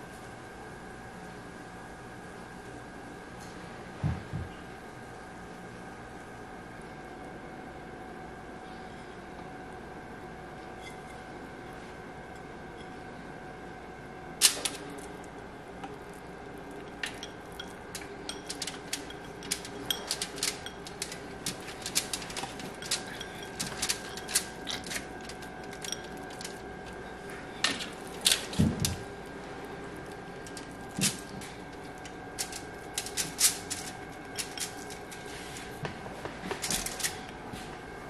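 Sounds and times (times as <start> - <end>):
faint hum: 0.0 - 38.0
ceramic bowls clicking on tray: 17.0 - 26.6, 32.0 - 35.0.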